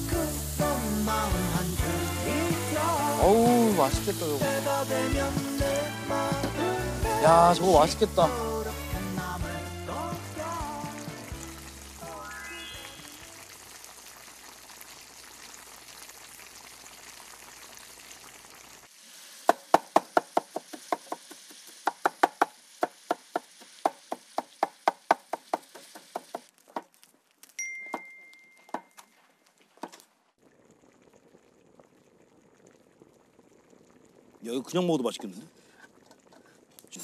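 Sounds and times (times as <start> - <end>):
food sizzling in a pan: 0.0 - 27.6.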